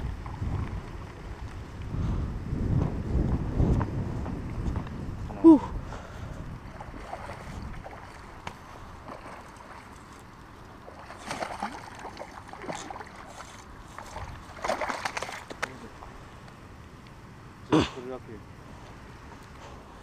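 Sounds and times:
fish thrashing and splashing: 6.7s - 15.6s.

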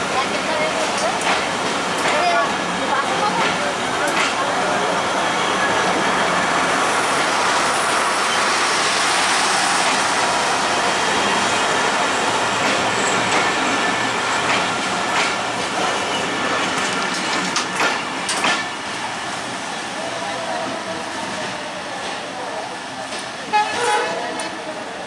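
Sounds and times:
train wheels rumbling on rails: 0.0s - 25.0s
sharp clacks of train wheels: 0.3s - 2.6s, 3.2s - 4.5s, 9.2s - 10.3s, 12.2s - 19.1s.

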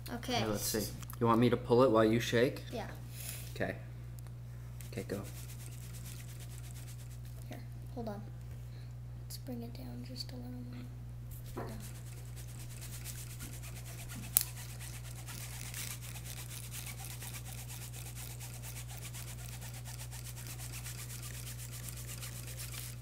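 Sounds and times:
steady low hum: 0.0s - 23.0s
marker scratching on paper: 11.7s - 23.0s.

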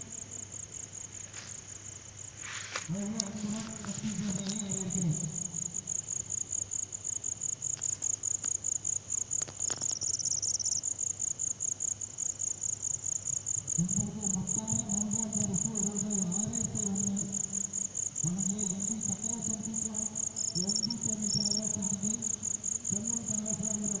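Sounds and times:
crickets chirping: 0.0s - 24.0s
frog trilling: 20.3s - 22.4s.

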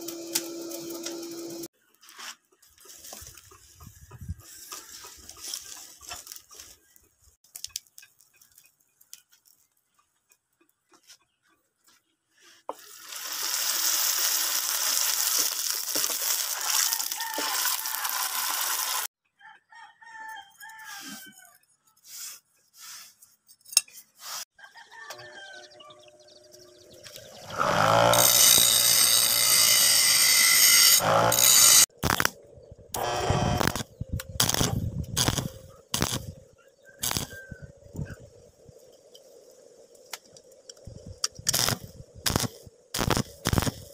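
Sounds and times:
rooster crowing: 16.6s - 18.5s, 19.4s - 21.6s, 24.6s - 26.2s, 36.9s - 37.7s
electric grinder whining: 17.4s - 19.1s, 27.1s - 31.9s, 33.0s - 33.8s.

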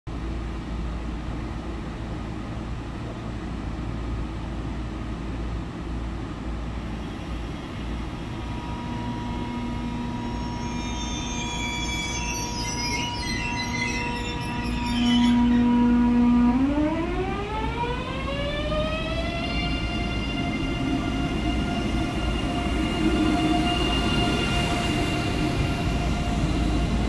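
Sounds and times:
electric train humming: 6.1s - 27.0s
steady high tones: 7.1s - 27.0s
shrill chirping: 10.2s - 16.4s.

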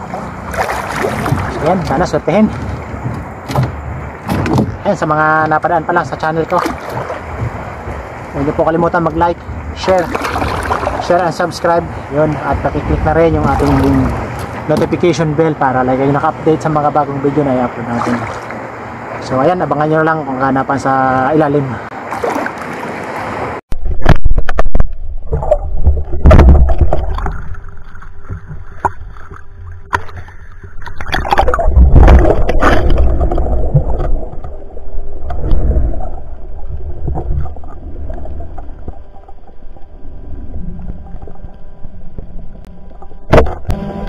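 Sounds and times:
muffled underwater rumble: 0.0s - 18.5s, 23.7s - 44.0s
sharp knocks: 2.6s - 4.8s.

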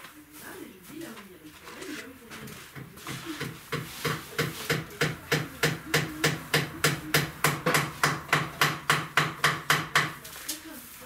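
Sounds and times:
hammer striking: 3.4s - 10.2s.

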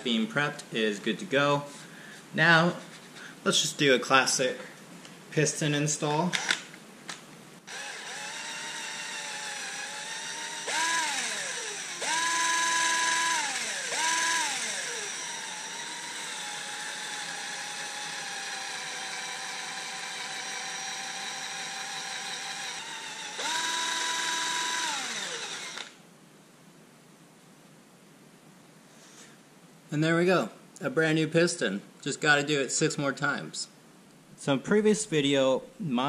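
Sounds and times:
drill with wire brush whining: 7.7s - 26.0s.

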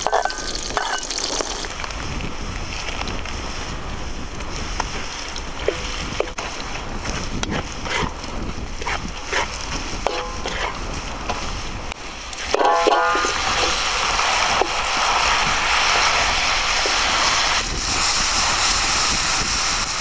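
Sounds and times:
metal spatula scraping a wok: 0.0s - 1.5s, 8.8s - 10.8s, 12.4s - 15.1s
food sizzling in oil: 0.0s - 1.9s, 7.2s - 20.0s.

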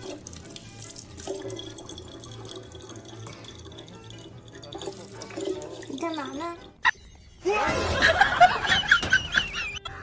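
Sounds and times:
water pouring into plastic bottle: 0.0s - 6.8s
water running from tap: 0.0s - 6.9s.

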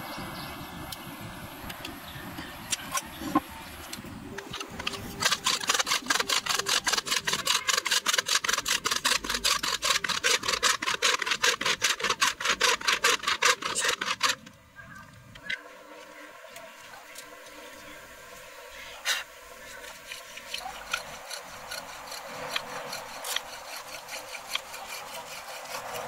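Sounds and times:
bow drill scraping rattle: 4.4s - 14.5s, 19.2s - 26.0s.

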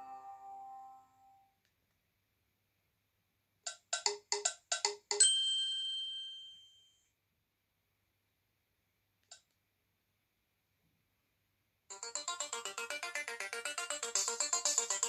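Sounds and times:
phone ringtone chiming notes: 11.9s - 15.0s.

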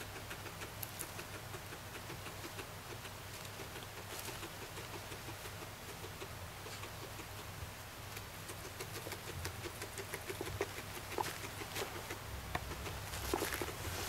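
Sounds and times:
guinea pig chewing hay: 0.0s - 14.0s
hay rustling: 13.0s - 14.0s.

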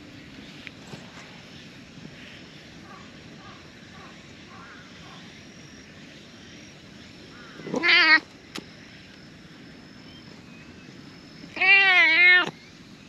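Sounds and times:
cat meowing loudly: 7.6s - 8.3s, 11.5s - 12.5s.

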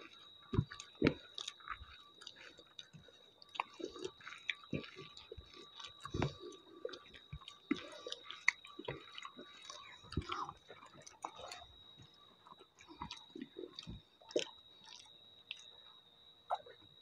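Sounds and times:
fingers squishing rice: 0.0s - 11.7s
wet chewing and lip smacks: 0.0s - 16.8s.

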